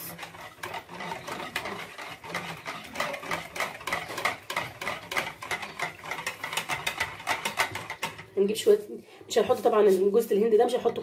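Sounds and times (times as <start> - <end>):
whisk clicking against bowl: 0.0 - 8.4.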